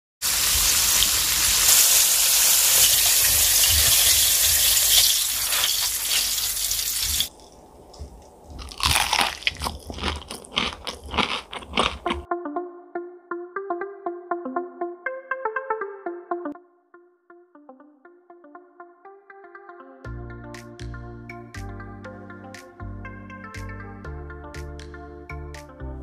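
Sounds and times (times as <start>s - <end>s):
chicken deep-frying in hot oil: 0.2s - 7.3s
crunching fried chicken: 1.6s - 12.3s.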